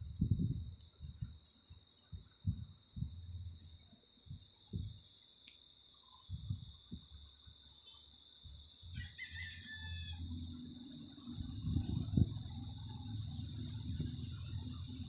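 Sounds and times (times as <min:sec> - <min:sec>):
high-pitched whine: 0:06.0 - 0:15.0.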